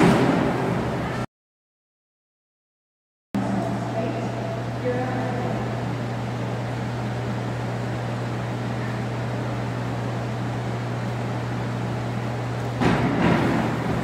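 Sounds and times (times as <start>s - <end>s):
springboard bang: 0.0s - 0.9s, 12.8s - 14.0s
ventilation hum: 0.0s - 1.3s, 3.4s - 14.0s.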